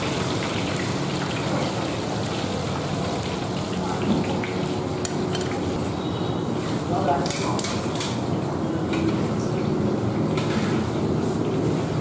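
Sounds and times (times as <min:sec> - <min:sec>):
liquid bubbling hard in a wok: 0:00.0 - 0:06.9.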